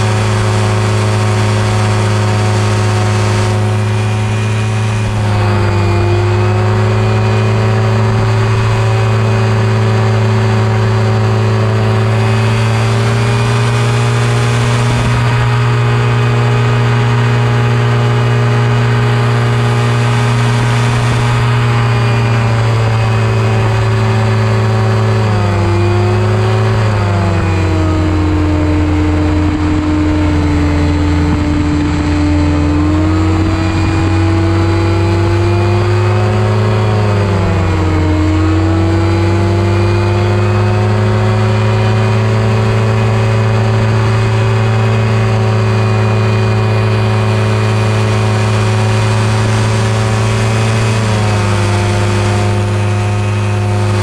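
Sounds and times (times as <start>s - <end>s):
aircraft engine and propeller drone: 0.0s - 54.0s.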